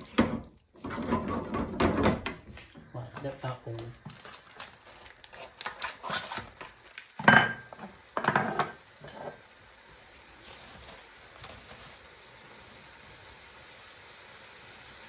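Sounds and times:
dishes and utensils clattering: 0.0s - 2.5s, 7.2s - 9.4s
plastic bag rustling: 3.7s - 7.1s, 10.3s - 12.6s.

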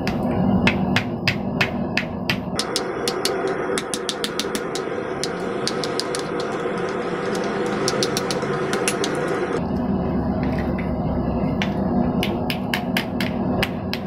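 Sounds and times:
hammer striking hot sheet steel: 0.0s - 9.6s
steady running hum: 0.0s - 14.0s.

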